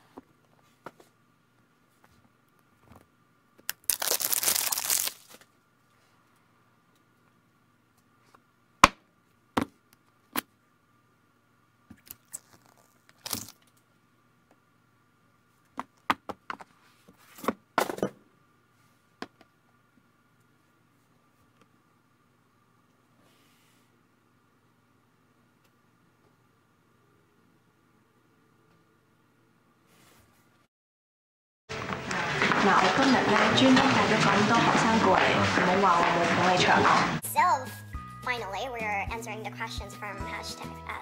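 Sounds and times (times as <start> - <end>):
plastic wrap tearing: 3.7 - 5.5, 12.0 - 13.7.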